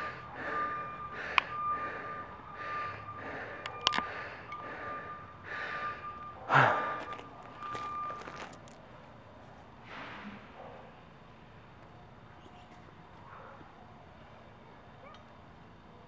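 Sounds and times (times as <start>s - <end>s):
man breathing hard: 0.0s - 7.8s
high beep tone: 0.0s - 8.6s.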